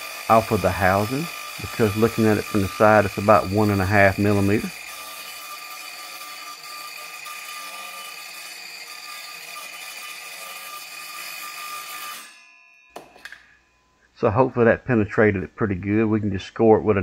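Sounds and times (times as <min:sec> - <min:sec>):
circular saw cutting plastic: 0:00.0 - 0:12.4.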